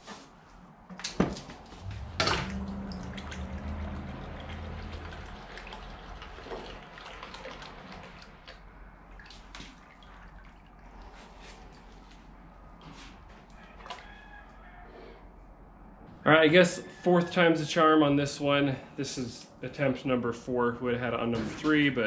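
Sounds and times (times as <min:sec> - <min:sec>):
low rumble: 0:01.5 - 0:07.3.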